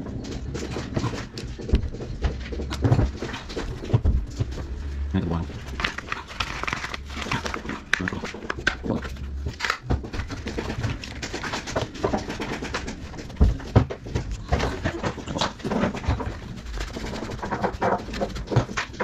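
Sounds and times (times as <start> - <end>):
heavier knocks: 0.8 - 4.8
plastic tool housing clicks and scrapes: 5.6 - 13.1.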